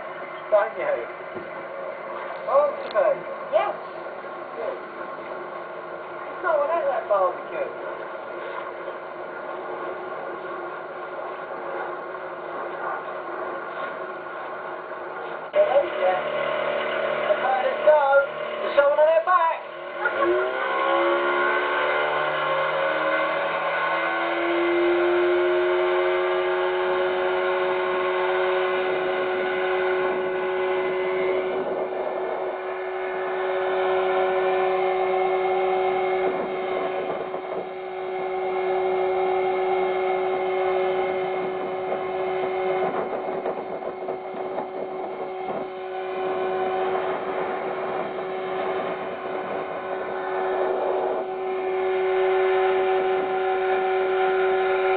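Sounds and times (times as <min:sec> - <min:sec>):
outboard motor running: 0:00.0 - 0:54.9.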